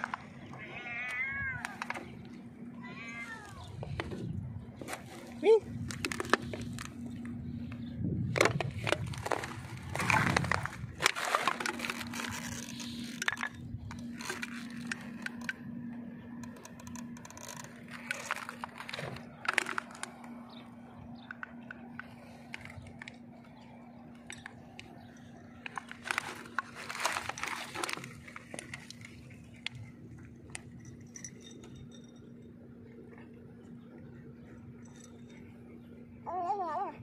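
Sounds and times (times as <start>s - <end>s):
faint steady hum: 0.0s - 37.0s
stones clicking and rustling: 4.9s - 7.0s, 16.4s - 20.4s, 24.2s - 31.8s.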